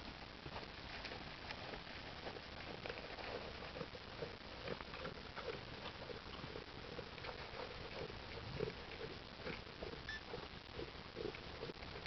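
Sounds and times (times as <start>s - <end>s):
alpaca crunching feed pellets: 0.4s - 12.0s.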